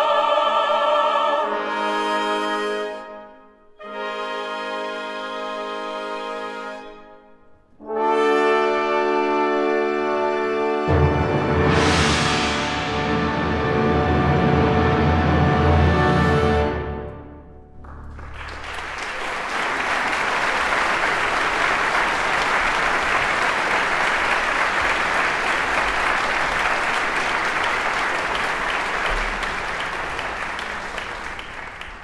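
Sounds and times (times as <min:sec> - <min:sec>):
audience applauding: 0:17.8 - 0:32.0.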